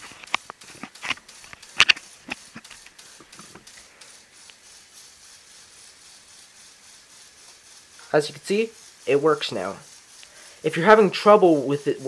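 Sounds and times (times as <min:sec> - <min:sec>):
plastic parts clicking and knocking: 0:00.0 - 0:03.8
faint electric motor whir: 0:00.0 - 0:12.0.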